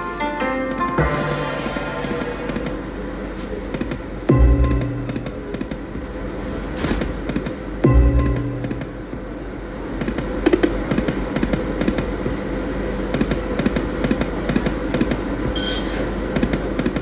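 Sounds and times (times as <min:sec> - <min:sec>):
steady hum: 0:00.0 - 0:17.0
bright electronic burst: 0:01.0 - 0:03.7.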